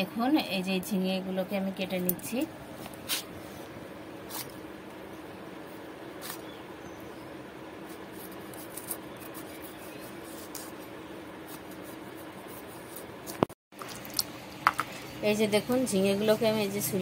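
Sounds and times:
steady low hum: 0.0 - 17.0
gourd skin scraping on blade: 4.3 - 4.6, 6.2 - 6.5, 7.8 - 10.9.

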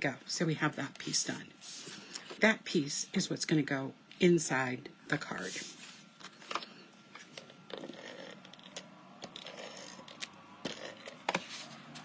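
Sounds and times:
paper rustling and sliding: 1.6 - 2.1, 11.2 - 12.0.

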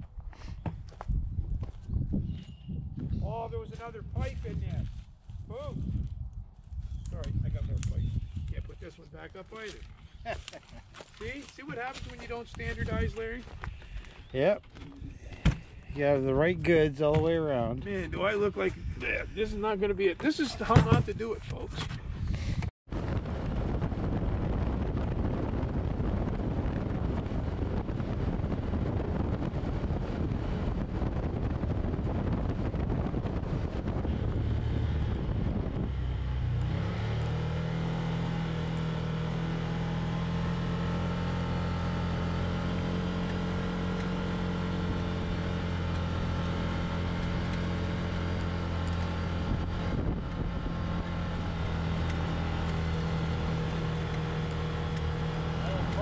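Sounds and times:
wind noise: 0.0 - 37.7, 44.6 - 56.0
tyres on gravel: 8.6 - 17.6
engine droning: 26.6 - 56.0.

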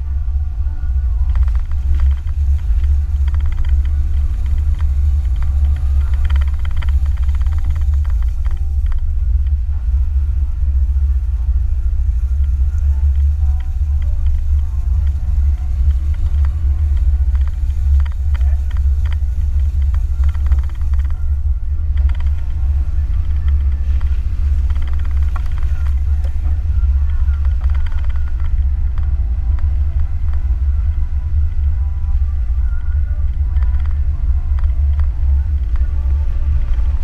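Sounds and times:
car engine rumble: 0.0 - 37.0.

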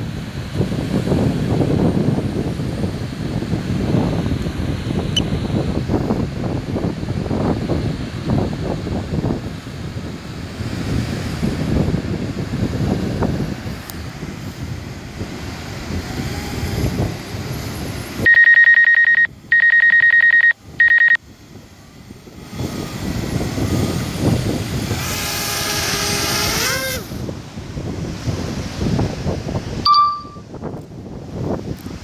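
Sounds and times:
wind noise on microphone: 0.0 - 32.0
electronic warning beeps: 18.3 - 21.2, 29.9 - 30.4
short higher beep: 18.3 - 21.2, 29.8 - 30.4.

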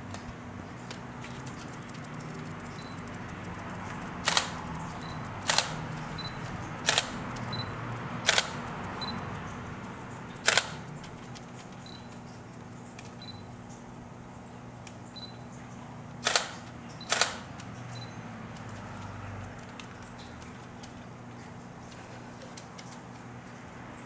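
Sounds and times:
camera shutter double click: 4.2 - 4.6, 5.4 - 5.8, 6.9 - 7.2, 8.2 - 8.6, 10.4 - 10.8, 16.2 - 17.5.

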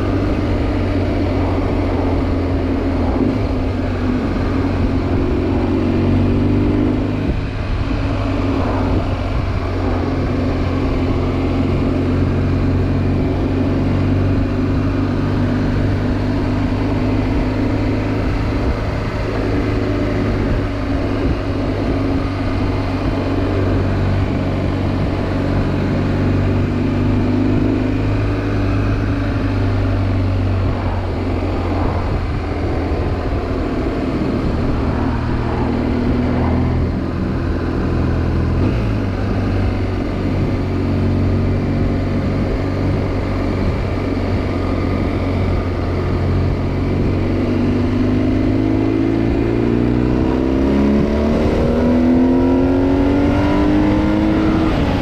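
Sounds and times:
motorcycle engine droning: 0.0 - 55.0.

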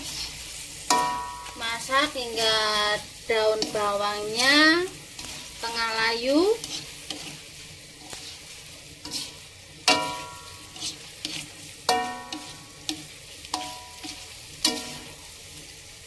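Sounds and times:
light sizzle: 0.0 - 16.0
spatula stirring in a wok: 0.0 - 16.0
spatula knocking on metal wok: 9.9 - 10.6.

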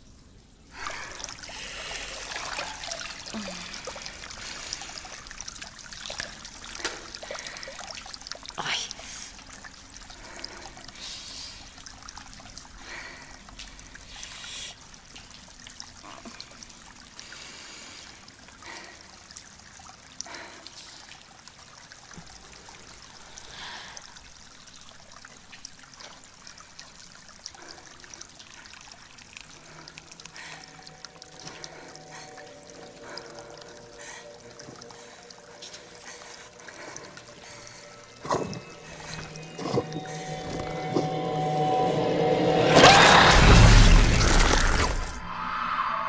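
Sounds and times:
water trickling: 0.0 - 45.2
water splashing: 0.7 - 14.4.

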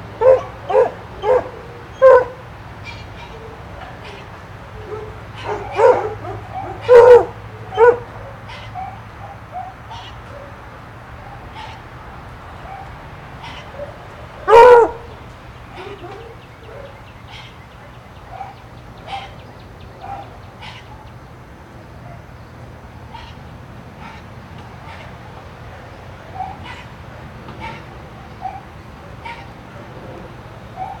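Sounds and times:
dog barking: 0.2 - 2.4, 4.8 - 10.6, 12.6 - 12.9, 13.5 - 15.2, 15.8 - 17.1, 18.3 - 19.4, 20.0 - 20.8, 22.0 - 22.3, 26.3 - 26.9, 28.4 - 29.4, 30.8 - 31.0.

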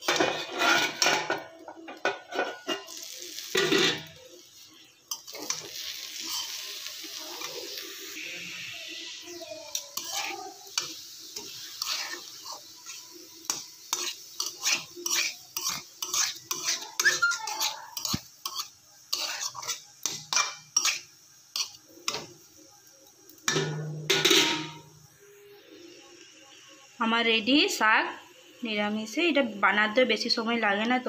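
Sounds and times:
metal spatula scraping a pan: 0.0 - 4.3, 5.0 - 8.6, 9.7 - 22.3, 23.5 - 25.0.

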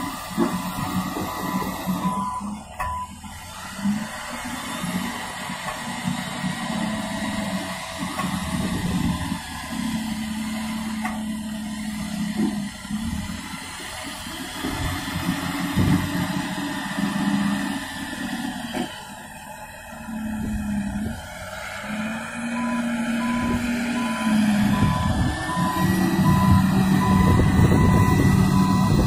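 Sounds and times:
vehicle engine humming: 0.0 - 29.0.

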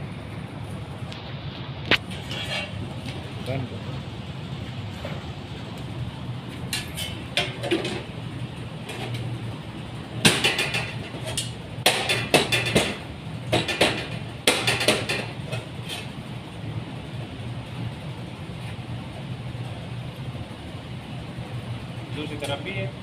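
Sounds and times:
low background hum: 0.0 - 23.0
knocks and clattering: 10.2 - 15.7.

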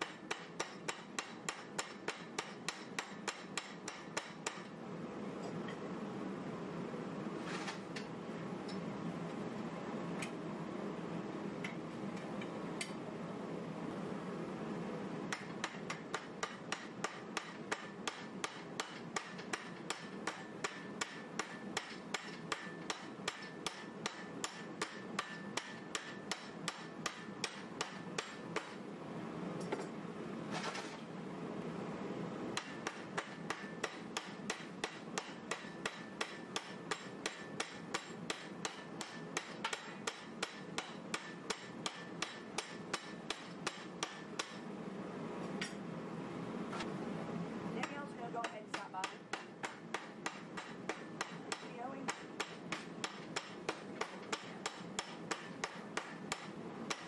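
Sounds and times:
hammer striking steel blade: 0.0 - 4.7, 15.3 - 28.8, 32.6 - 44.6, 48.7 - 57.0.

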